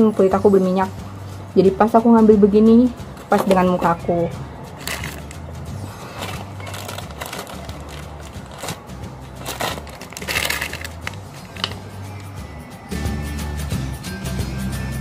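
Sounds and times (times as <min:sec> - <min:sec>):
background music with low bass: 0:00.0 - 0:15.0
plastic bottle rustling: 0:03.2 - 0:03.7, 0:04.8 - 0:05.4, 0:06.0 - 0:11.8.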